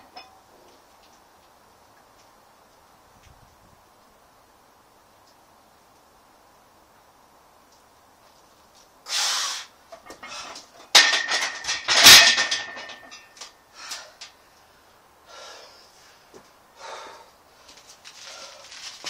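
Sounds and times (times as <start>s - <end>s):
heavy exhale: 9.1s - 9.7s, 15.3s - 17.3s
heavy breathing: 15.2s - 18.8s.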